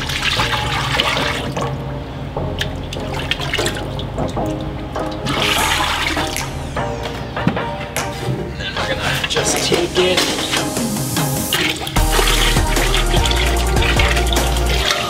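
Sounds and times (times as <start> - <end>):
liquid glaze pouring and splashing: 0.0 - 1.8, 9.2 - 15.0
background music: 0.0 - 15.0.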